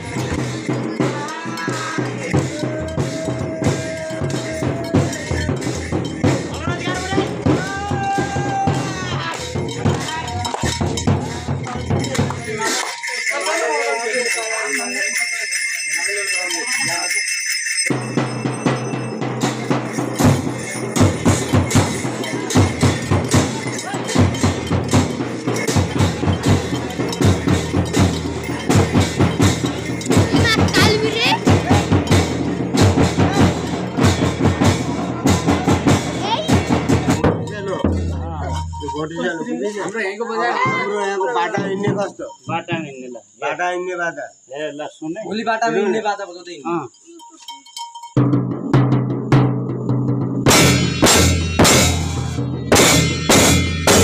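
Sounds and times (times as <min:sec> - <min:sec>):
person singing: 0:00.0 - 0:05.9
drums: 0:00.0 - 0:39.9, 0:40.5 - 0:43.3, 0:47.5 - 0:54.0
small metal cymbals clashing: 0:00.0 - 0:43.4, 0:44.3 - 0:54.0
cymbal clashes: 0:17.0 - 0:39.4, 0:50.5 - 0:54.0.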